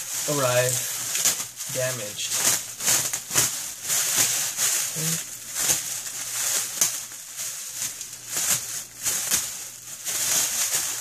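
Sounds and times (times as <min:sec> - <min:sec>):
plastic bag crinkling: 0:00.0 - 0:11.0.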